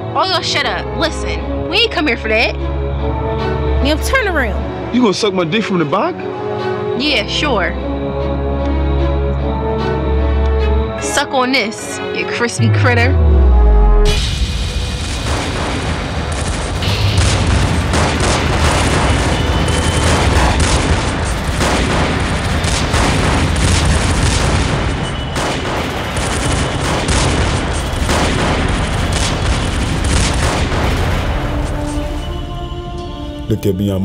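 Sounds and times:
heavy low rumble: 0:12.5 - 0:15.3
automatic rifle gunfire: 0:17.8 - 0:31.4.

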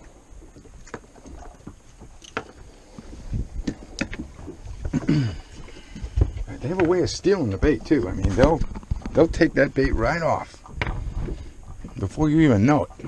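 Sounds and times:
low rumble of wind and water: 0:00.0 - 0:13.0.

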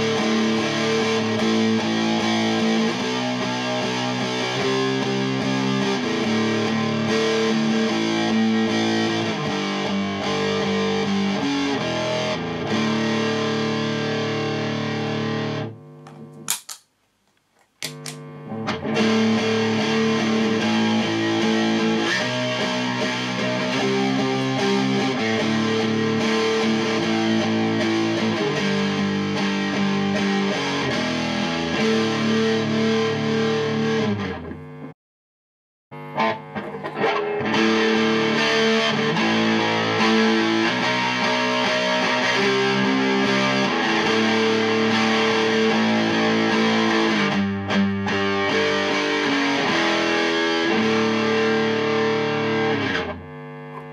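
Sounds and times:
fuzz electric guitar riff: 0:00.0 - 0:16.7, 0:17.8 - 0:34.9, 0:35.9 - 0:53.9
clicks: 0:16.0 - 0:18.2.

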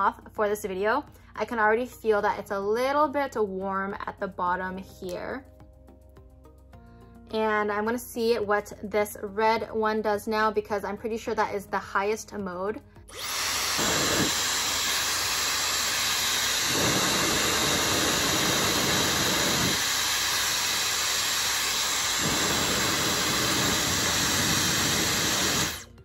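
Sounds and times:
hair dryer blowing air: 0:13.1 - 0:26.0.

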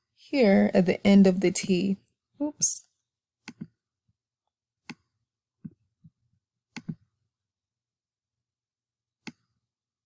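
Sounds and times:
computer mouse clicks: 0:03.4 - 0:03.8, 0:04.8 - 0:05.8, 0:06.7 - 0:07.1, 0:09.2 - 0:09.6.

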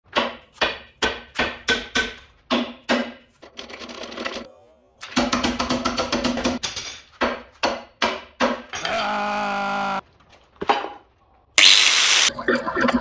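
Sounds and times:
tools knocking on metal: 0:05.2 - 0:08.9
man yelling: 0:08.8 - 0:10.0.

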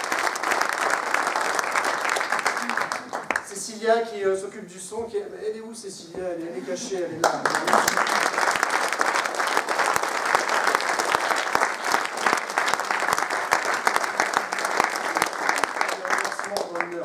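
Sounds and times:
crowd applauding: 0:00.0 - 0:03.6, 0:07.2 - 0:17.0.

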